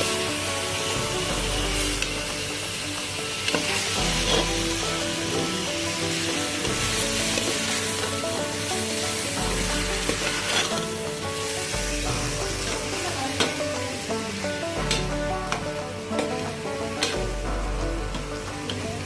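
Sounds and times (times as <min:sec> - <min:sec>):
vegetables sizzling in a pot: 0:00.0 - 0:19.0
spoon stirring and scraping: 0:10.0 - 0:10.9.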